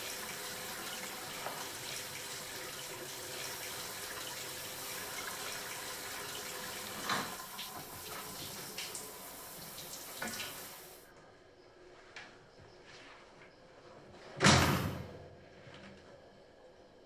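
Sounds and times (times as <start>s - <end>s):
tap water running into sink: 0.0s - 11.0s.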